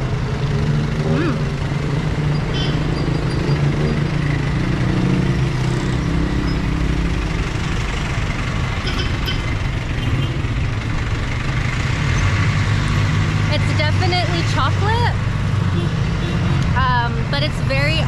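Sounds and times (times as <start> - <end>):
vehicle engines running: 0.0 - 18.0.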